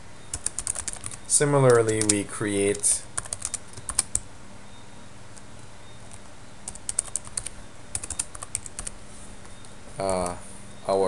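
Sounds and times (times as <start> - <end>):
keyboard typing: 0.3 - 2.2, 3.2 - 4.3, 5.3 - 10.3.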